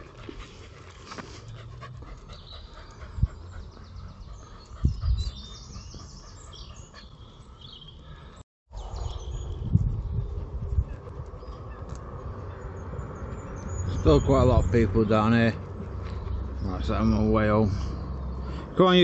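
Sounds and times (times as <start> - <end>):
dog panting: 0.0 - 7.7
small birds chirping: 0.4 - 19.0.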